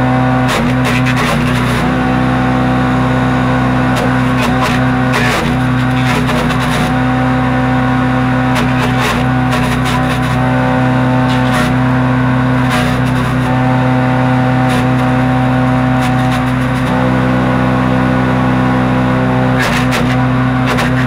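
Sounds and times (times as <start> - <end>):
small gas engine running: 0.0 - 21.0
branches crackling in chipper: 0.4 - 17.2.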